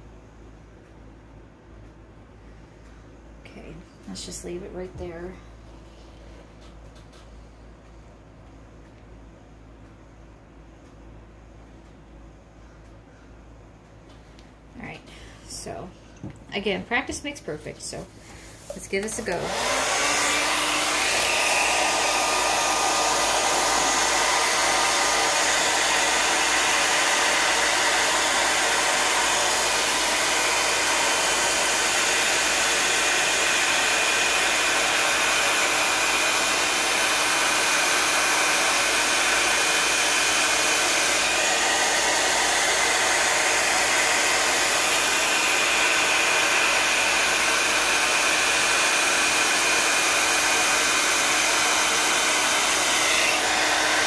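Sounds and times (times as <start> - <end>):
hair dryer running: 18.2 - 54.0.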